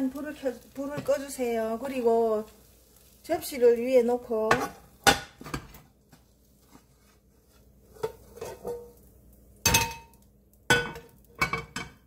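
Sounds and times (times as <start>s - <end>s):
frying pan knocking against plate: 4.5s - 5.8s, 9.7s - 12.0s.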